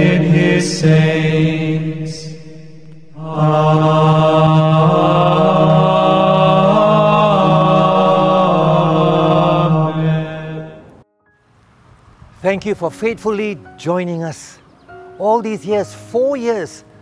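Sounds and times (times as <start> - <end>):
person chanting on a held note: 0.0 - 8.9.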